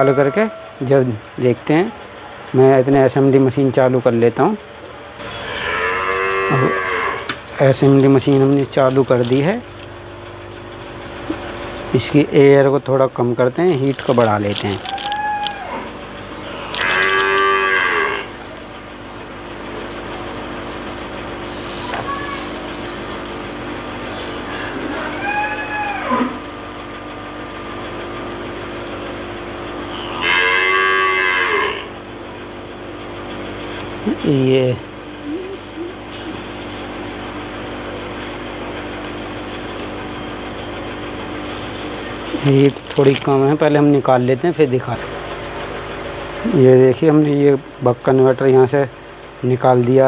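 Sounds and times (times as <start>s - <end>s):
cow mooing: 0.0s - 0.9s, 5.3s - 7.3s, 15.2s - 18.4s, 24.3s - 26.4s, 29.8s - 32.0s
hot-air blower humming: 0.0s - 5.5s, 6.1s - 50.0s.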